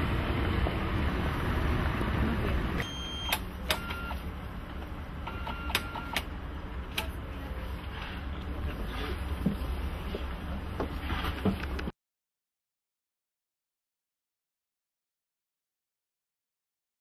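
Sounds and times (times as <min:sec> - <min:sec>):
street and bus noise: 0:00.0 - 0:11.9
ticket validator beeping and clicking: 0:02.8 - 0:04.2, 0:05.2 - 0:06.3.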